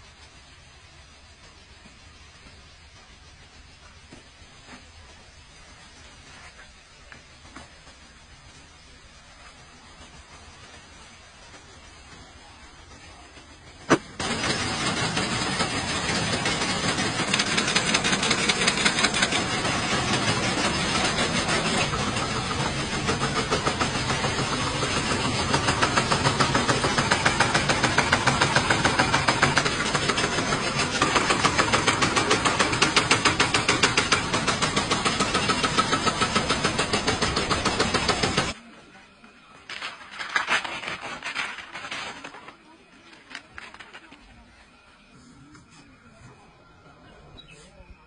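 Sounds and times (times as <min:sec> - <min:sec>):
cutting machine clattering: 0:13.7 - 0:38.6.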